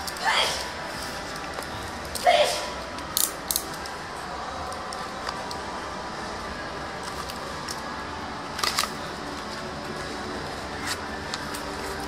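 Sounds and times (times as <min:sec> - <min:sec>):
steady background hum: 0:00.0 - 0:12.0.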